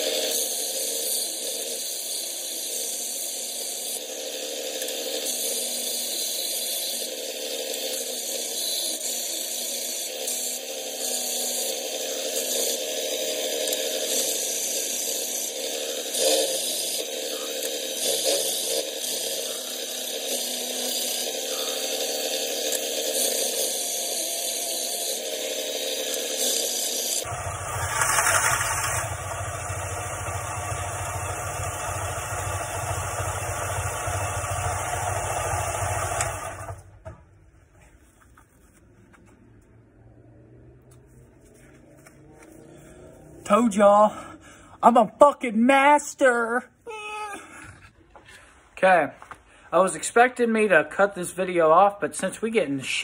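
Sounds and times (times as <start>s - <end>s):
belt sander grinding: 0.0s - 37.0s.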